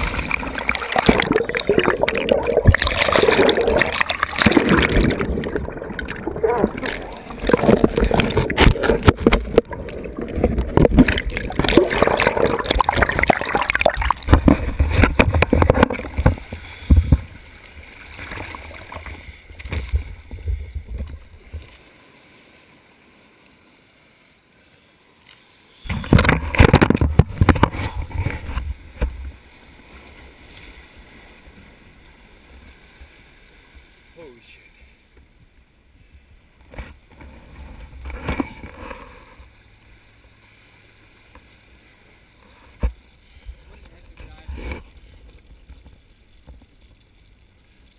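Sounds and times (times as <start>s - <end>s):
water bubbling: 0.0s - 21.4s
muffled rushing water: 0.0s - 47.9s.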